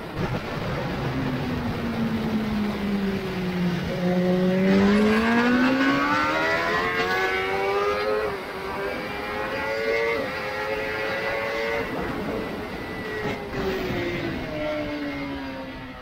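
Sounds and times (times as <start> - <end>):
motorcycle engine accelerating: 0.2 - 16.0
wind rushing on microphone: 10.2 - 16.0.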